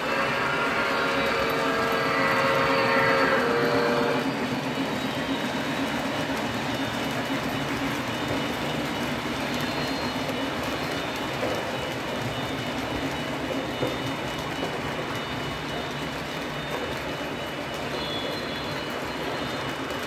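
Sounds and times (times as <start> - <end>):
model steam locomotive whistle: 0.0 - 4.5, 17.9 - 19.7
model train wheels clattering on track: 0.0 - 20.0.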